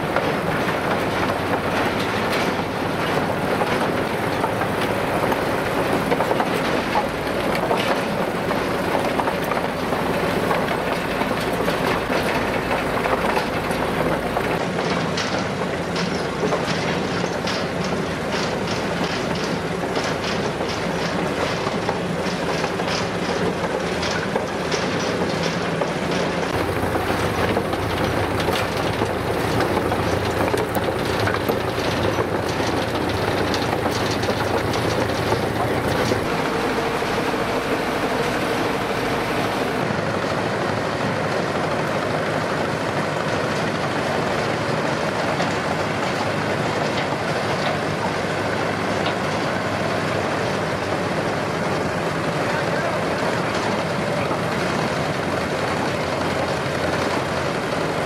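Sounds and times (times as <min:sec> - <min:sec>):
clanking of track plates: 0:00.0 - 0:39.9
engine running steadily: 0:00.0 - 0:58.0.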